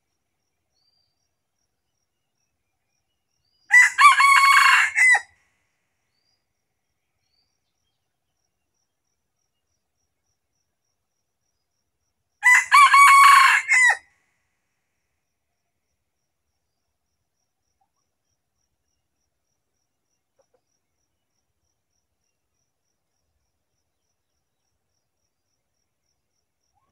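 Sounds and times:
rooster crowing: 0:03.7 - 0:05.3, 0:12.4 - 0:14.1.

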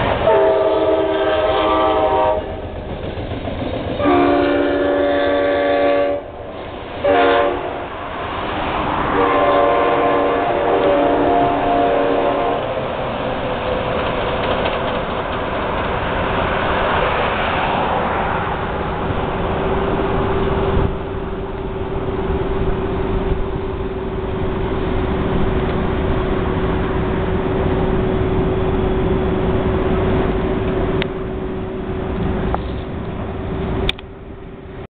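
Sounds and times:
traffic passing: 0:00.0 - 0:34.9
train rushing past: 0:00.0 - 0:34.9.

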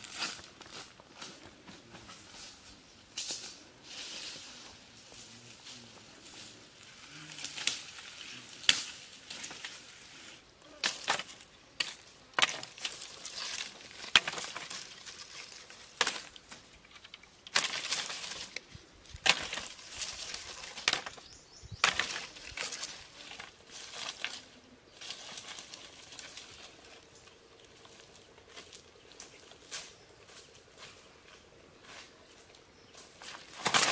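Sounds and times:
rustling of dry leaves: 0:00.0 - 0:33.9
dry sticks snapping: 0:07.3 - 0:08.0, 0:08.6 - 0:09.8, 0:10.8 - 0:24.4, 0:33.2 - 0:33.9.

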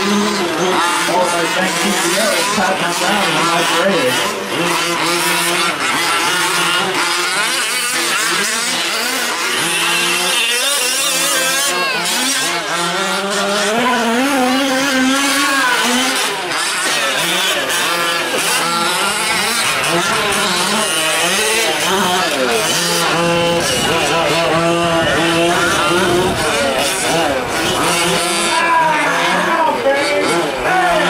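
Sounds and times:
small two-stroke engines revving: 0:00.0 - 0:31.0.

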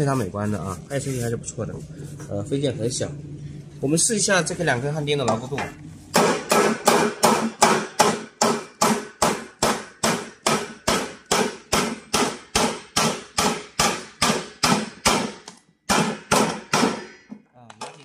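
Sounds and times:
hammer on metal: 0:05.3 - 0:17.3.

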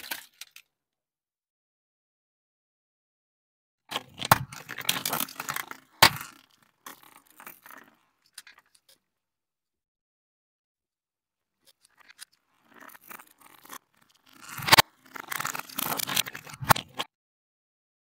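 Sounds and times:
tyre crushing plastic cups: 0:04.0 - 0:07.9.

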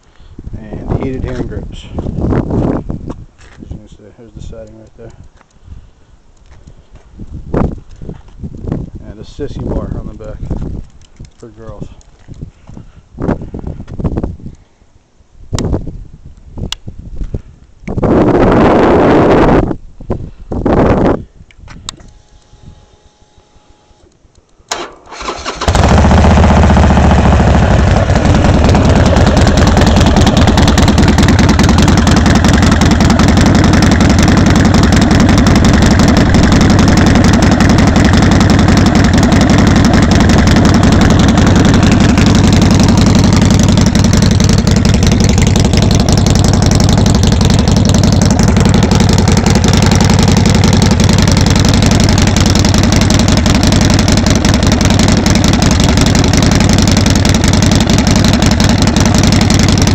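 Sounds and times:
motorcycle starter cranking: 0:24.7 - 0:59.9
motorcycle engine idling loudly: 0:25.2 - 0:59.9.

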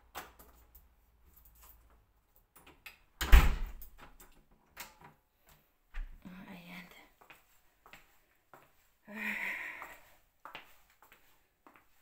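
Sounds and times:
wooden door closing: 0:03.2 - 0:04.2.

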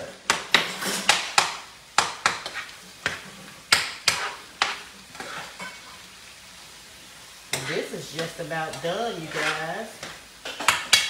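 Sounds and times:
meat sizzling: 0:00.0 - 0:11.0
spatula scraping a skillet: 0:00.3 - 0:06.2, 0:07.4 - 0:11.0.

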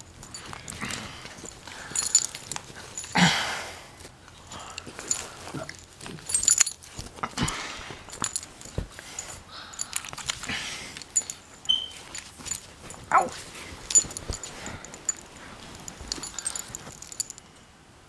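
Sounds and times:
bedding rustling: 0:00.0 - 0:17.4
collar tags jingling: 0:00.0 - 0:17.5
puppy whining: 0:13.0 - 0:13.4.

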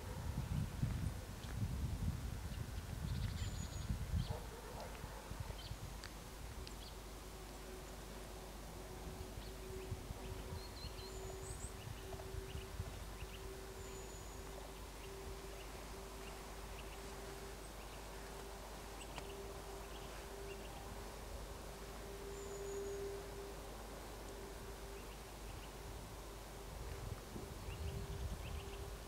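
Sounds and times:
small birds chirping: 0:02.5 - 0:04.5, 0:09.4 - 0:20.8.

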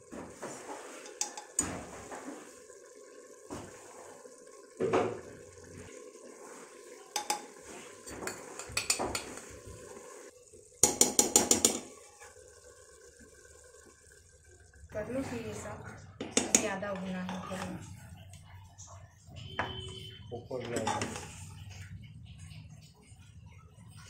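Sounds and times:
spoon scraping pressure cooker: 0:00.7 - 0:02.2, 0:07.1 - 0:09.6, 0:10.8 - 0:11.9, 0:16.3 - 0:17.8, 0:20.6 - 0:21.4.

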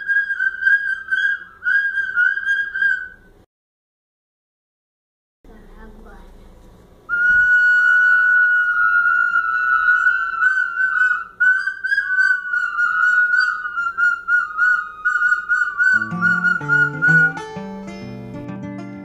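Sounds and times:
lower whistle tone: 0:00.0 - 0:03.4, 0:07.1 - 0:17.6
children blowing plastic whistles: 0:07.1 - 0:17.4.

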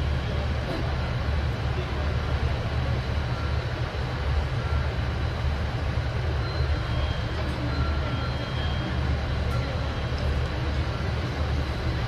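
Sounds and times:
diesel railcar engine rumbling: 0:00.0 - 0:12.0.

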